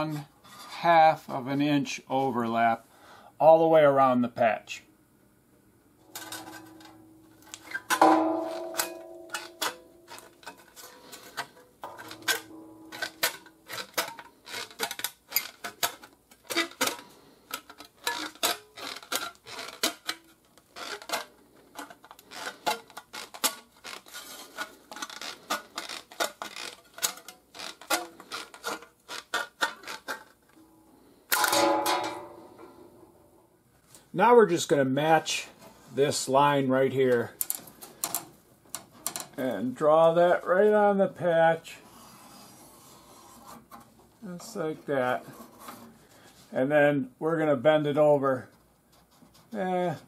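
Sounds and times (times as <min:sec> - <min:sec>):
sheet metal clanging: 0:06.0 - 0:15.0, 0:30.6 - 0:33.2.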